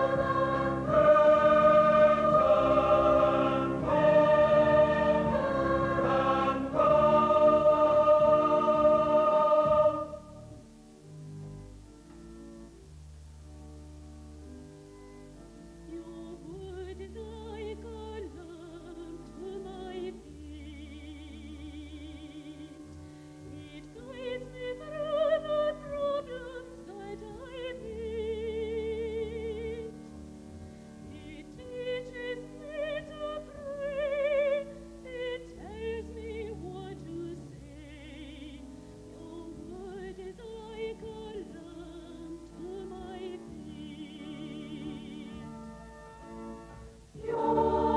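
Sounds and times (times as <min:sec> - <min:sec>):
instrumental accompaniment: 0:00.0 - 0:16.0.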